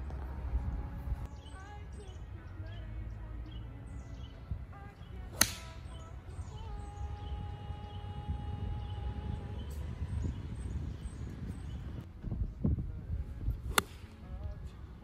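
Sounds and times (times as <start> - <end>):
golf club striking ball: 5.3 - 6.0, 13.7 - 14.2.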